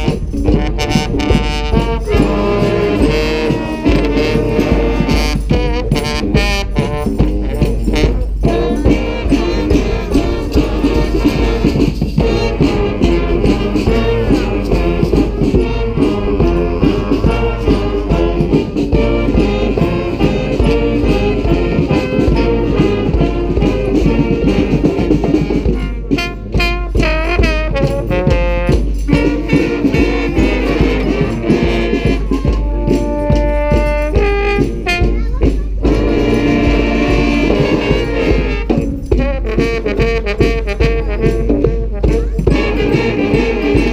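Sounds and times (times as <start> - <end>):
brass band playing rock tune: 0.0 - 43.9
horns playing bending notes: 0.0 - 43.9.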